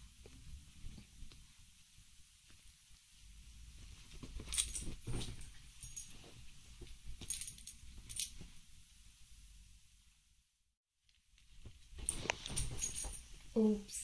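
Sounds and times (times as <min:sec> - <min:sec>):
soft rustling and thumps: 0:03.7 - 0:08.8, 0:11.1 - 0:13.5
collar tags jingling: 0:07.2 - 0:08.4, 0:11.9 - 0:13.8.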